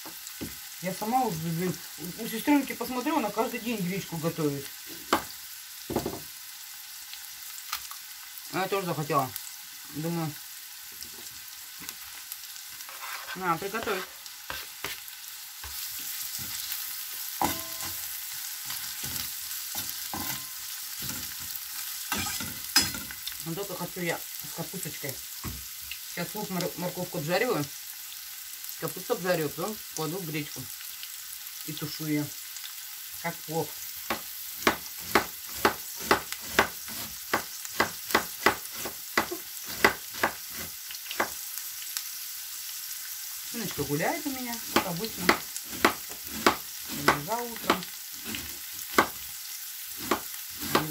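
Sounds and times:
sizzling hiss of frying: 0.0 - 50.9
knife chopping on plastic board: 34.1 - 40.4, 44.7 - 47.8.

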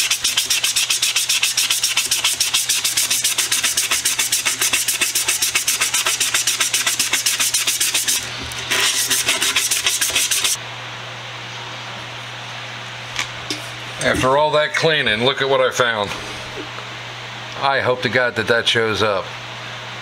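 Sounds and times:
sandpaper scraping metal: 0.0 - 10.6
steady low hum: 0.0 - 20.0.

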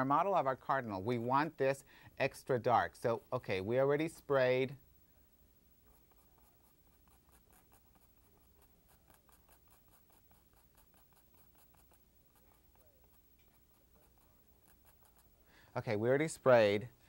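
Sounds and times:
fine tool scratching on canvas: 5.8 - 15.4.

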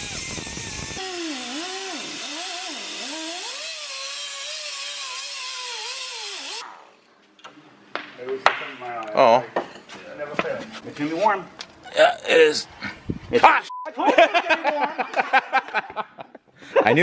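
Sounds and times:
cut-off wheel grinding metal: 0.0 - 6.6.

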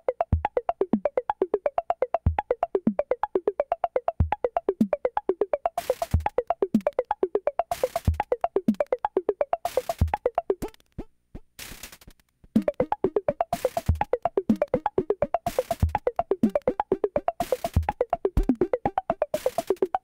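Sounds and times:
noise hiss bursts: 11.6 - 12.1
square-wave chiptune notes: 12.6 - 20.0.

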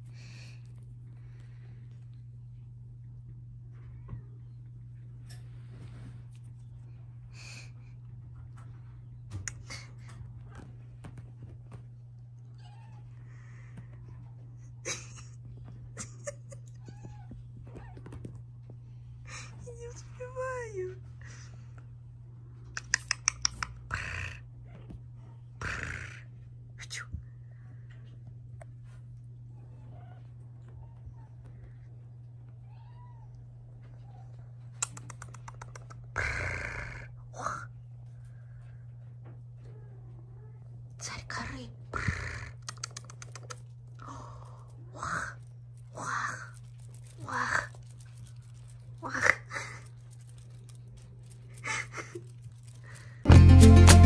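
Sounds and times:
kitten meowing faintly: 32.6 - 34.3
small clicks: 42.6 - 43.8.

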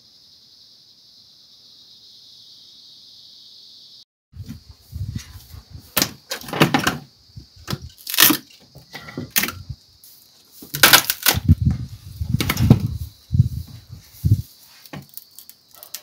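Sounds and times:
wood thudding on pavement: 6.0 - 9.6
dry branches cracking: 7.7 - 8.6, 10.7 - 11.6.

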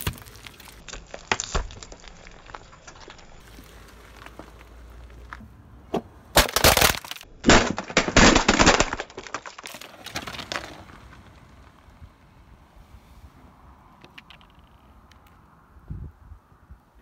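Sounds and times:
plastic cracking under tyre: 0.0 - 5.4, 6.3 - 12.0.

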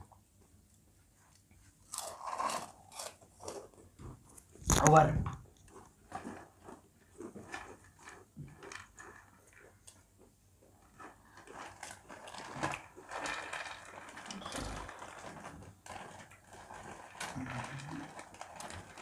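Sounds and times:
plastic snack packets crinkling: 1.8 - 3.7, 10.9 - 19.0
crunchy chewing: 1.8 - 3.8.

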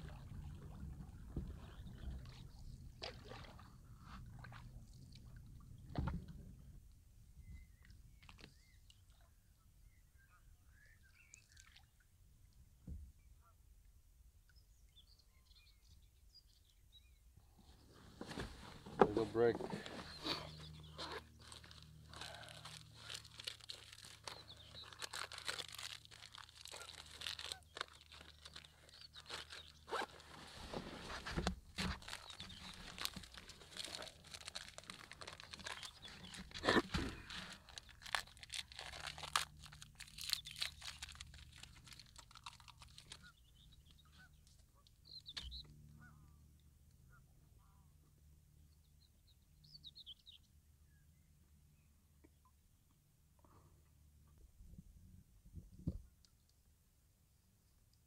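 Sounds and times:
crunching bites: 21.0 - 30.1, 31.9 - 43.2
plastic wrapper crinkling: 21.0 - 30.3, 31.8 - 43.3.

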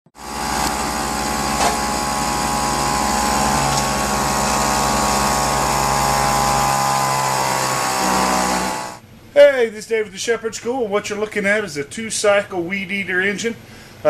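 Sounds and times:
air-powered engine pulsing: 0.2 - 9.0.

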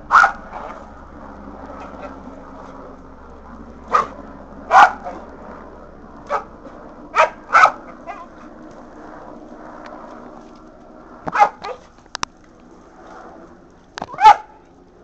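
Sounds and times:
dog barking: 0.1 - 0.8, 3.9 - 5.2, 6.3 - 8.4, 11.3 - 11.9, 14.1 - 14.6.

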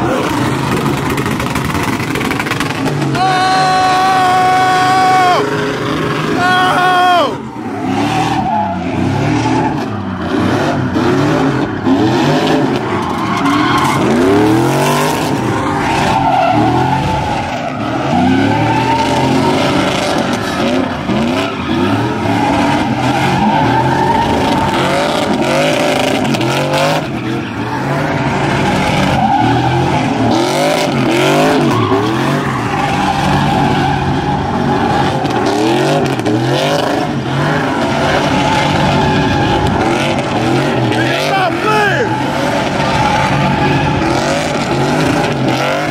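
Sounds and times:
truck engines revving: 0.0 - 45.9
tyres squealing on asphalt: 0.0 - 45.9.

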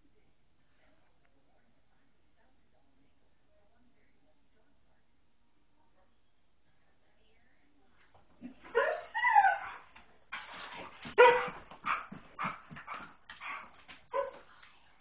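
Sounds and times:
dog whining: 8.7 - 14.7.

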